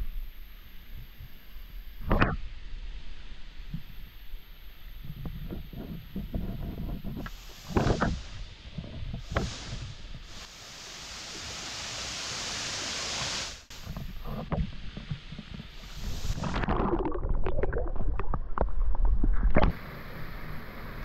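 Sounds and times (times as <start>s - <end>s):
muffled underwater water noise: 0.0s - 21.0s
waterfall rushing: 10.4s - 13.7s.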